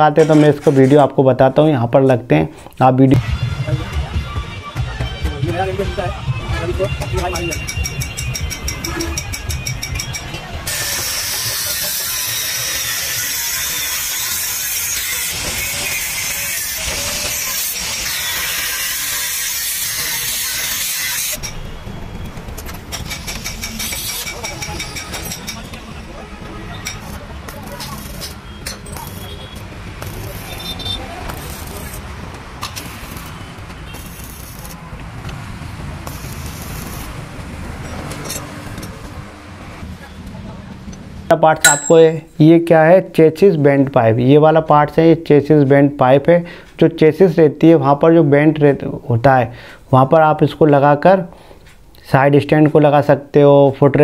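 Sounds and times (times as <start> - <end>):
angle grinder cutting steel: 10.0 - 21.5, 23.1 - 25.6
welding arc crackling and hissing: 10.7 - 21.4, 26.8 - 34.8, 36.0 - 37.4.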